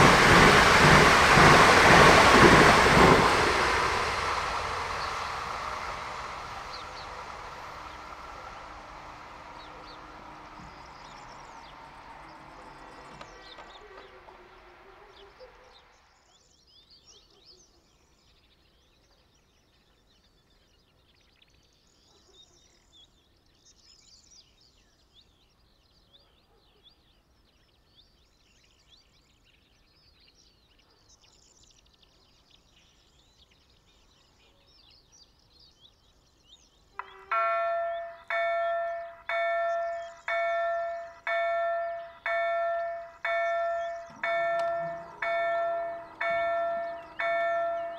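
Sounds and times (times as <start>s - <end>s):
faint birdsong: 4.2s - 47.9s
level crossing warning bell: 7.2s - 15.1s, 37.0s - 47.9s.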